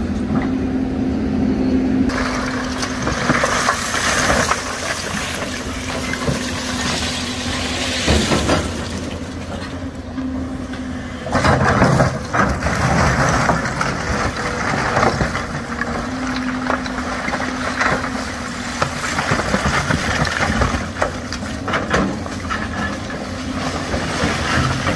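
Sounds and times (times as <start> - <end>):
excavator diesel engine: 0.0 - 24.9.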